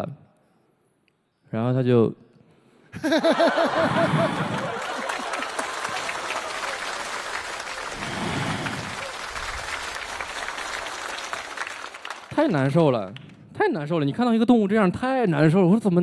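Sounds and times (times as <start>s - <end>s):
audience laughing: 3.0s - 9.6s
audience applauding: 3.2s - 13.2s.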